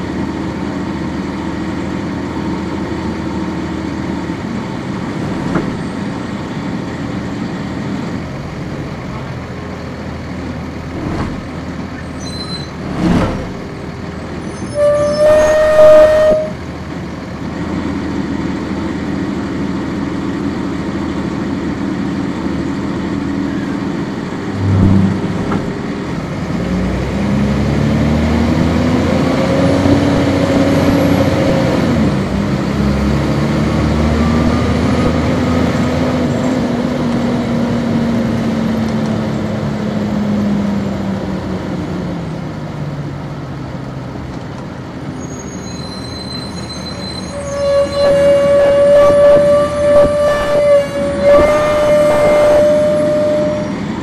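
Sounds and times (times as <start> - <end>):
diesel bus engine: 0.0 - 54.0
bus horn blast: 14.5 - 16.8, 24.5 - 25.8, 47.0 - 54.0
low thump: 24.6 - 25.9.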